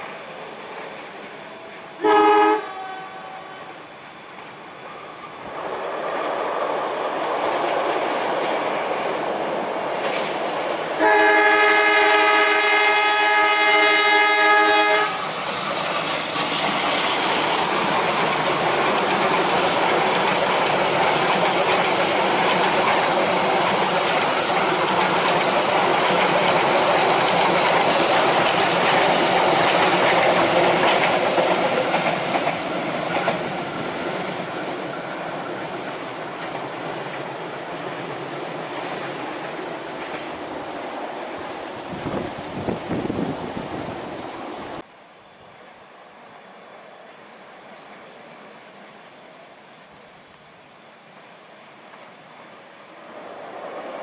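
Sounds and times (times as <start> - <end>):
locomotive horn blast: 2.0 - 3.8, 11.0 - 15.3
coaches clattering on rails: 5.6 - 11.0, 16.4 - 40.5.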